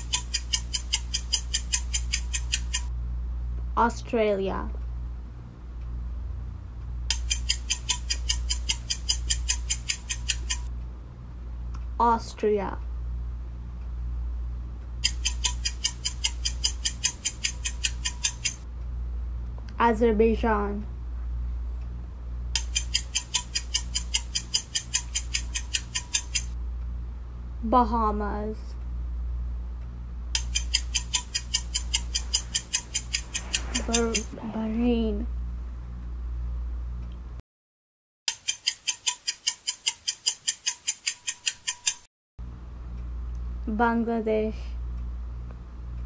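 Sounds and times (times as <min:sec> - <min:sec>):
clock ticking quickly: 0:00.0 - 0:02.9, 0:07.1 - 0:10.7, 0:15.0 - 0:18.6, 0:22.6 - 0:26.6, 0:30.4 - 0:34.4, 0:38.3 - 0:42.1
steady low hum: 0:00.0 - 0:37.4.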